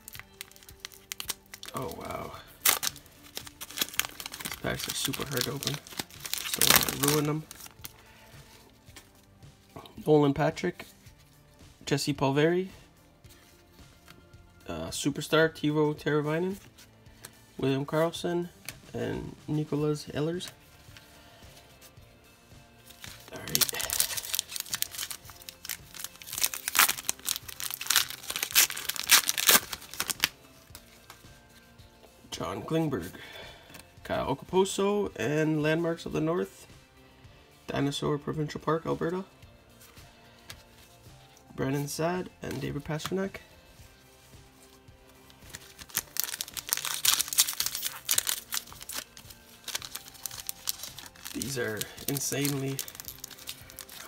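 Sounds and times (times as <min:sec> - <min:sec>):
foil wrappers crinkling and tearing: 0:00.0 - 0:09.1, 0:22.9 - 0:31.2, 0:45.3 - 0:54.0.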